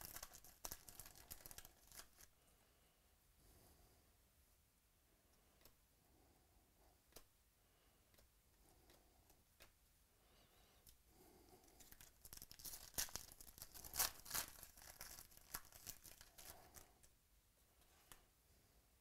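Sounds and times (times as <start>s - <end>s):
foil wrapper tearing and crinkling: 0.0s - 2.3s, 11.8s - 16.9s.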